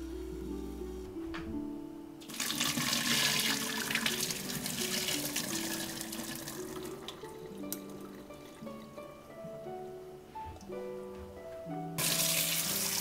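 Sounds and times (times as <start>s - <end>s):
water splashing into metal sink: 2.2s - 8.2s, 12.0s - 13.0s.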